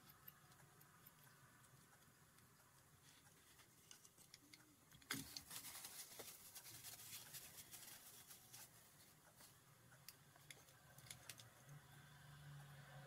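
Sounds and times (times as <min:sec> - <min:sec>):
small metallic clicks and taps: 0:09.1 - 0:11.8.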